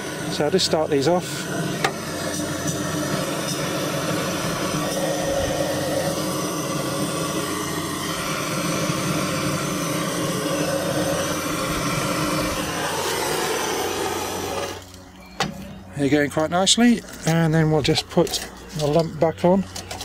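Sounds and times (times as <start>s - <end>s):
gas torch flame rushing: 0.0s - 15.6s.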